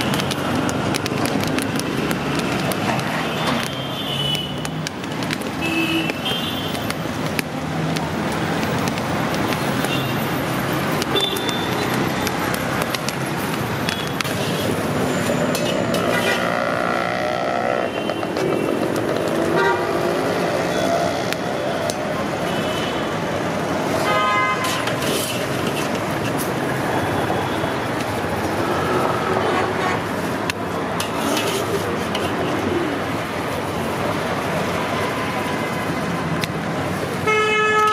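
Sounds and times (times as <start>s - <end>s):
street traffic: 0.0s - 37.9s
skimmer scraping in iron pan: 14.3s - 16.6s, 24.6s - 26.5s, 31.0s - 32.3s
sand and corn stirred in iron pan: 24.6s - 26.5s.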